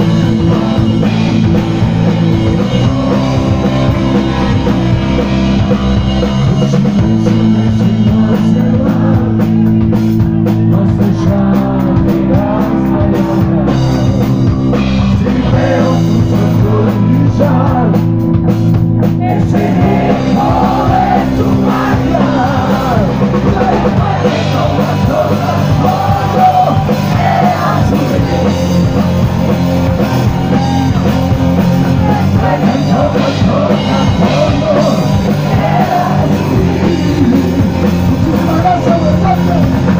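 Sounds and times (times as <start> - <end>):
man singing into microphone: 0.0 - 5.2, 6.4 - 14.3, 15.1 - 18.1, 19.2 - 28.8, 31.9 - 39.8
bass guitar: 0.0 - 39.9
drum kit: 0.0 - 39.9
electric guitar: 0.0 - 39.9.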